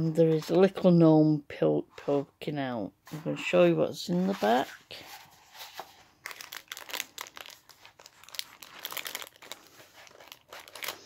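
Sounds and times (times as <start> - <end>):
cellophane crinkling: 4.4 - 11.0.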